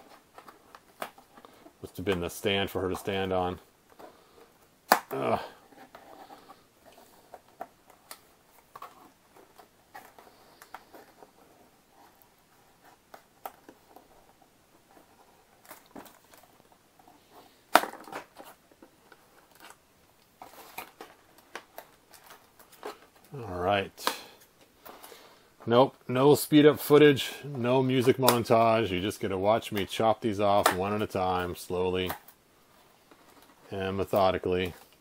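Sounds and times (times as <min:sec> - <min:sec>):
plastic ties being snipped: 0:24.0 - 0:24.7.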